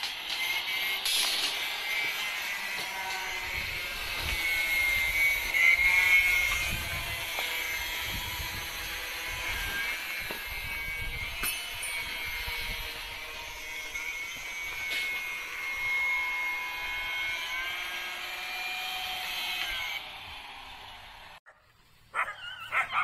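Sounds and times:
steady mechanical whine: 0.0 - 21.4
wind rumble on microphone: 6.2 - 11.5.

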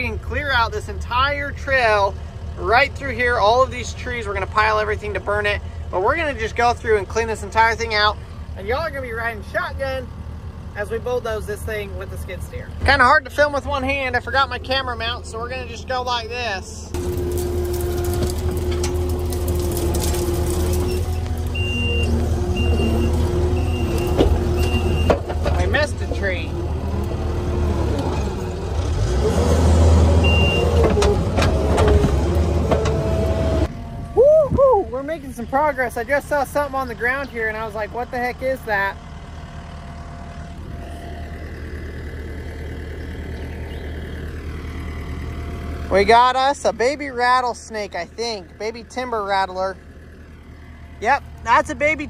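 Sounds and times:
diesel engine running: 0.0 - 52.0
backup alarm beeping: 21.5 - 25.2, 30.2 - 30.8
constant whine: 30.2 - 52.0.

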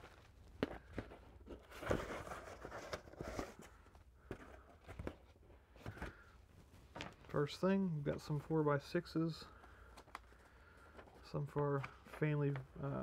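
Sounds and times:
cardboard and paper rustling: 0.0 - 8.5.

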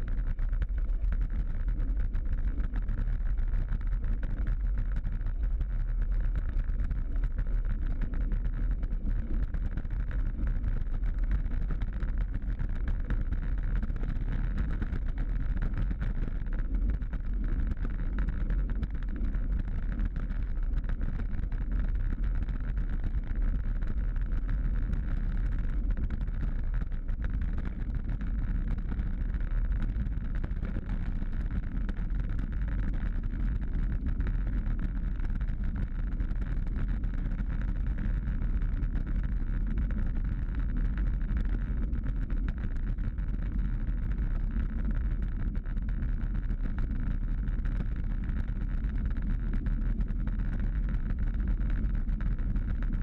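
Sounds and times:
bicycle road rumble: 0.0 - 48.7.

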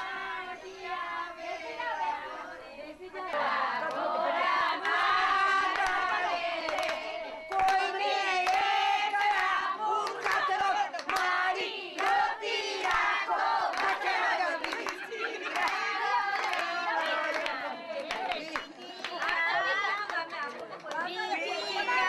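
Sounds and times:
women singing together: 0.0 - 22.0
sharp handclaps: 5.7 - 11.4, 12.0 - 12.2, 12.8 - 21.2.

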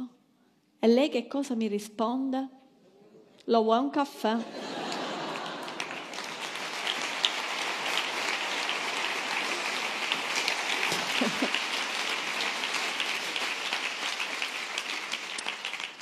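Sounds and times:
audience applauding: 4.5 - 16.0.

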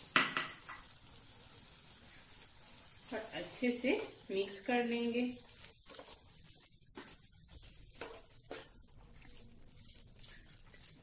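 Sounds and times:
faint sizzling: 0.0 - 11.0
spatula scraping a frying pan: 5.4 - 11.0.

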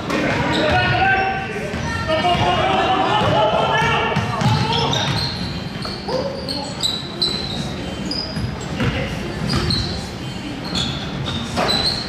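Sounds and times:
sneakers squeaking: 0.0 - 12.0
basketball bouncing on gym floor: 1.7 - 2.6, 3.2 - 6.0, 8.4 - 9.8.

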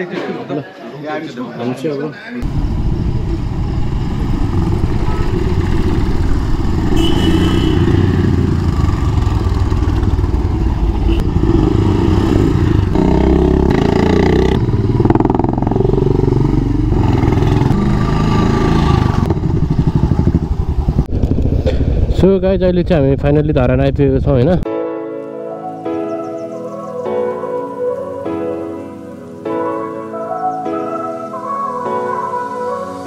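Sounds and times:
motorcycle engine running: 2.4 - 24.3.

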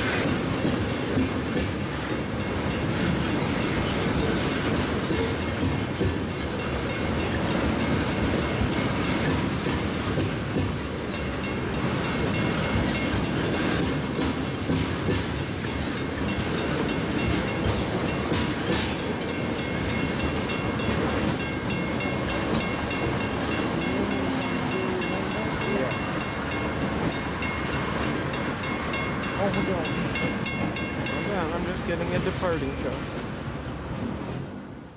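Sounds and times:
crossing bell ringing: 0.0 - 33.7
train wheels rumbling and clacking: 0.0 - 34.9.

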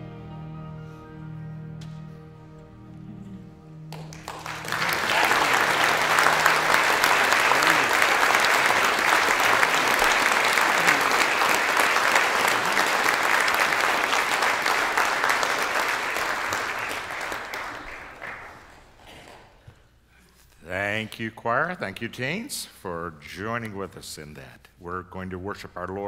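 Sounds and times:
congregation clapping: 3.9 - 19.5.

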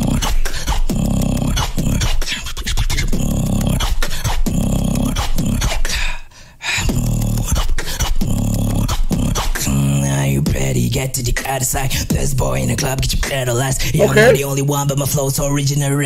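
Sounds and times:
person beatboxing: 0.0 - 6.0, 6.8 - 10.7, 14.0 - 14.5.

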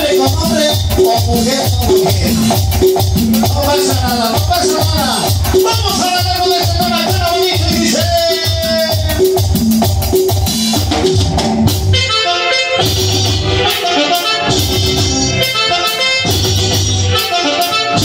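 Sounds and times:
drum kit: 0.0 - 18.0
electronic keyboard melody: 0.0 - 18.0
electric guitar: 6.7 - 18.0.

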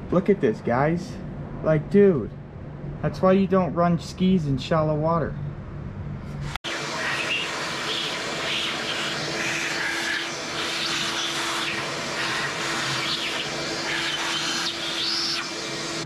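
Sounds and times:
vacuum cleaner running: 6.5 - 16.0.

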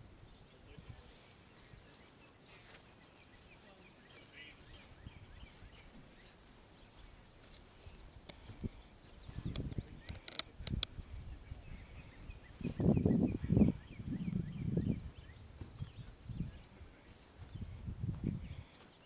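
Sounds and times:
faint bird chirps: 0.0 - 7.1, 7.7 - 19.0
sharp clicks: 9.5 - 11.0.

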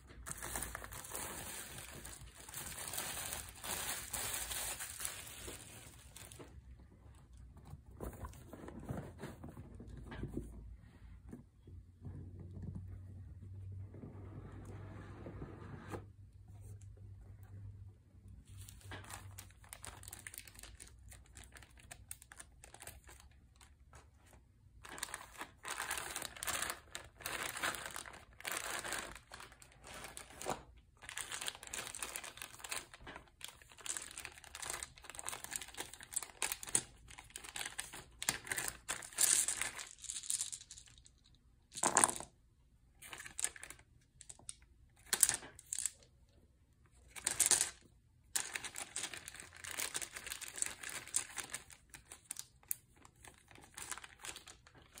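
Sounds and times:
plastic bags crinkling: 0.0 - 6.7, 18.7 - 23.9, 24.7 - 41.1, 48.4 - 55.0
dice clattering on cardboard: 38.8 - 42.4, 44.2 - 46.0, 47.1 - 49.2.

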